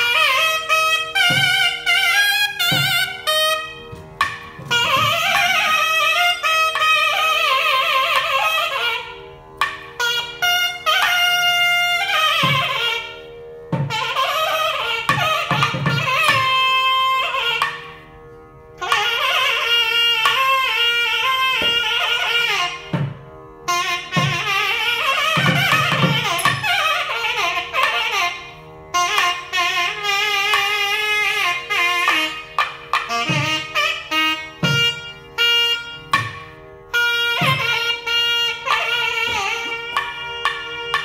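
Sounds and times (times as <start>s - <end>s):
nagaswaram melody: 0.0s - 41.0s
drum strokes: 1.0s - 6.1s, 24.1s - 26.9s.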